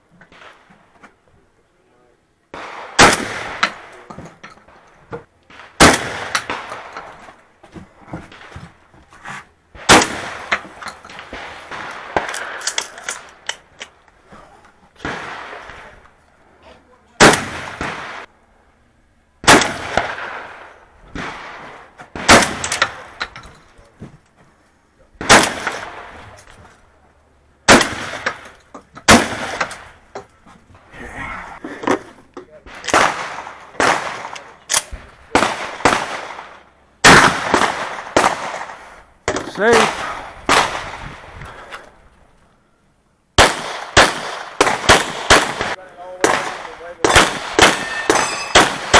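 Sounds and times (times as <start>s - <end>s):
shotgun shots: 2.5s - 4.1s, 5.5s - 7.1s, 9.7s - 13.2s, 15.0s - 16.0s, 17.2s - 18.3s, 19.4s - 23.2s, 25.2s - 26.3s, 27.7s - 28.5s, 29.1s - 30.0s, 32.7s - 41.3s, 43.4s - 48.9s.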